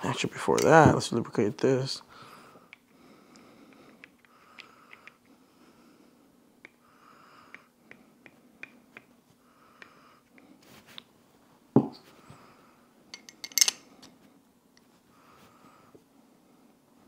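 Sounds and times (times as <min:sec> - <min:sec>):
small metal parts clicking: 0:13.2 - 0:13.8.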